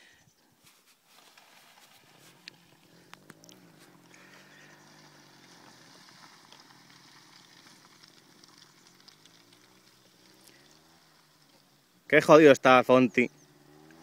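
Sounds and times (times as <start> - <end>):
distant motorcycle engine revving: 2.3 - 12.1, 13.1 - 14.0.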